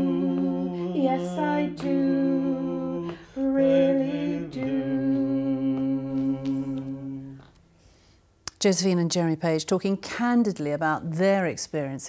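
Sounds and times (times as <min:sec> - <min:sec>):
man and woman singing in harmony: 0:00.0 - 0:07.6.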